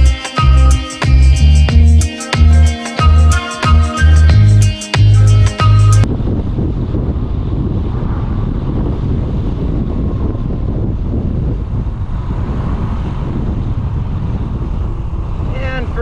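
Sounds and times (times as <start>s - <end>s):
wind rush on microphone: 6.0s - 16.0s.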